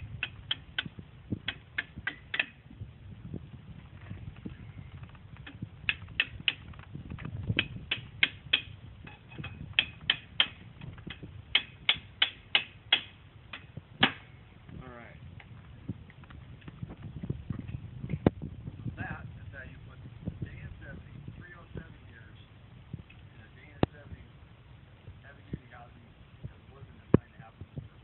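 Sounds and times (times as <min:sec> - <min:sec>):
hammer tapping on steel: 0:00.2 - 0:02.6, 0:05.4 - 0:06.8, 0:07.6 - 0:14.3.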